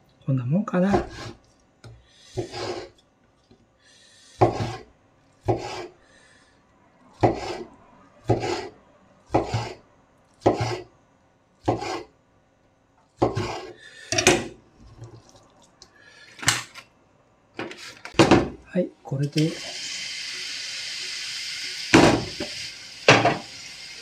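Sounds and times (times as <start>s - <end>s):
knife cutting tofu on wooden board: 5.4s - 5.9s, 11.6s - 12.1s.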